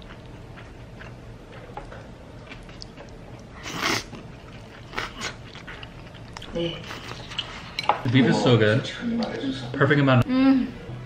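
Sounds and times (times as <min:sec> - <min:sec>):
person chewing: 0:00.0 - 0:07.8.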